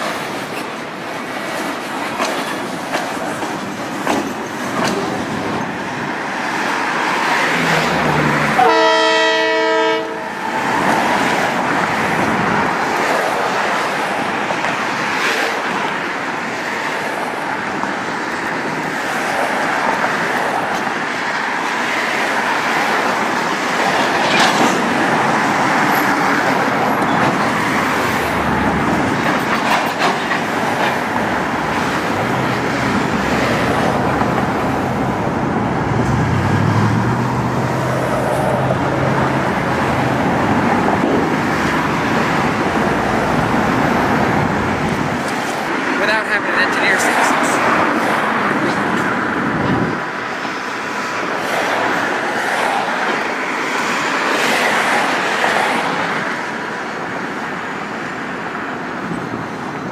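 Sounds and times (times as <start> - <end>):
wheels clicking over rail joints: 1.4 - 5.8, 25.8 - 35.0
locomotive horn blast: 8.6 - 10.4.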